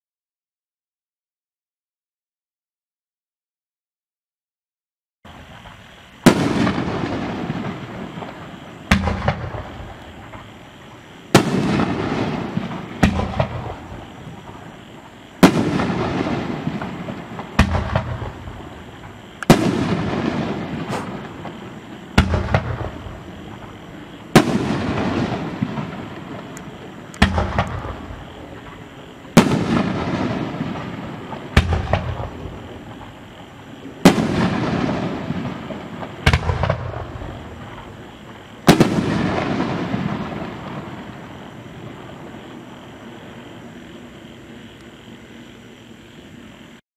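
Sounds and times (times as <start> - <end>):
fireworks bangs: 5.3 - 42.8
fireworks crackle and echo: 5.3 - 46.8.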